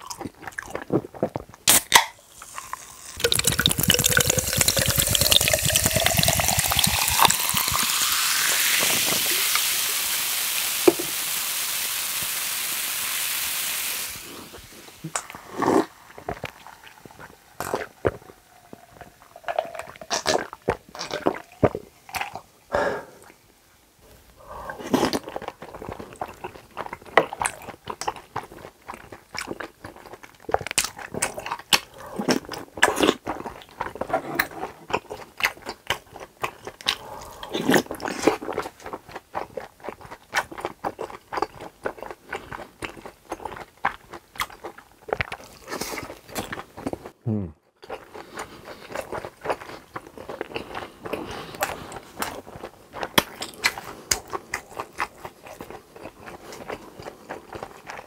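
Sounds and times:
mouth sounds of eating: 0:00.0 - 0:08.0, 0:14.2 - 0:23.4, 0:24.1 - 0:58.0
soda pouring and fizzing over ice: 0:02.2 - 0:20.2
gulping: 0:31.2 - 0:33.2, 0:33.9 - 0:35.1, 0:36.8 - 0:38.4.

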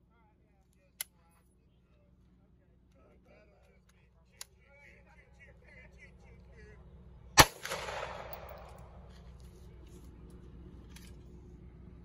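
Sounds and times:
pistol shot with echo: 0:07.4 - 0:08.9.

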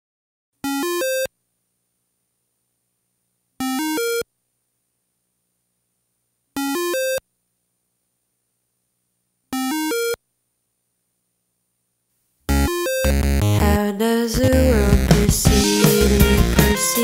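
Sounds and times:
rising synthesizer beeps: 0:12.5 - 0:13.8.

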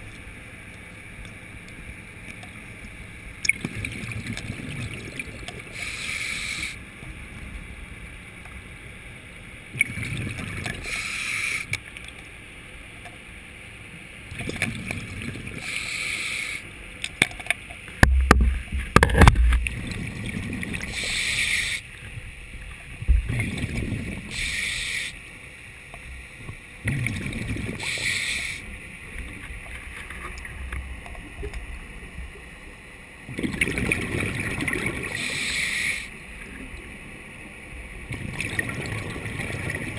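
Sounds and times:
exhaled bubbles rushing: 0:03.5 - 0:05.8, 0:09.7 - 0:11.0, 0:14.3 - 0:15.7, 0:18.0 - 0:21.2, 0:23.0 - 0:24.4, 0:26.8 - 0:31.9, 0:33.2 - 0:35.4, 0:38.0 - 0:39.9
diving regulator breathing hiss: 0:05.7 - 0:06.8, 0:10.8 - 0:11.7, 0:15.6 - 0:16.7, 0:20.9 - 0:21.9, 0:24.3 - 0:25.2, 0:27.8 - 0:28.7, 0:35.1 - 0:36.2.

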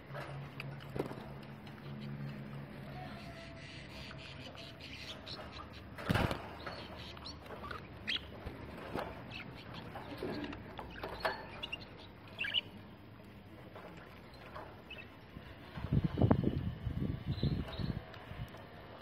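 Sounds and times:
budgerigars chirping: 0:03.0 - 0:12.9
wings flapping: 0:05.8 - 0:07.4.

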